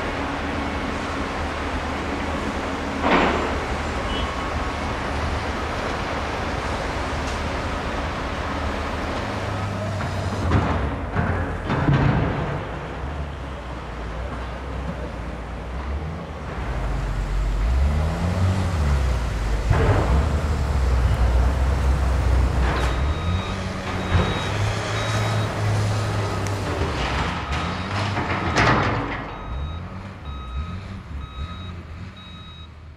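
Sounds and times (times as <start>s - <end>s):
diesel engine revving: 15.6s - 32.8s
reversing alarm beeping: 22.5s - 26.4s, 27.4s - 32.8s.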